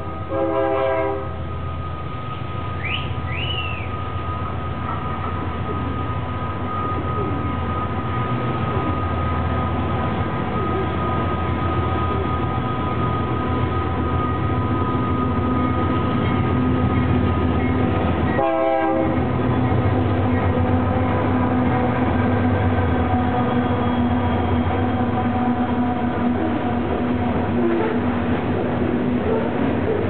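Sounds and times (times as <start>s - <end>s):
locomotive horn chord: 0.0s - 1.5s, 18.3s - 23.8s.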